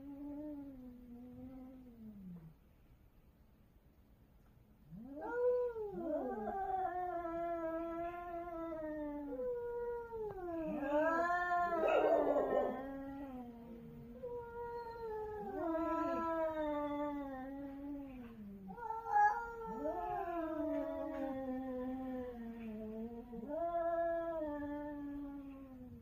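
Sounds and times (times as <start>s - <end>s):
cats yowling: 4.9s - 25.9s.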